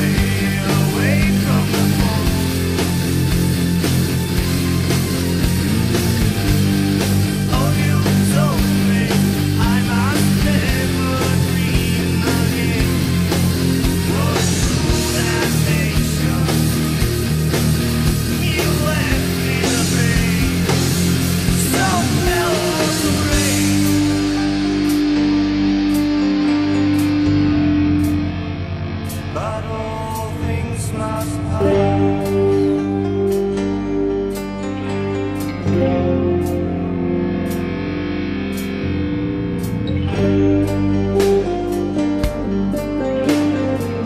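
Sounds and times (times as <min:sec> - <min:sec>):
electric guitar lead notes: 0:00.0 - 0:44.0
sustained low notes: 0:00.0 - 0:44.0.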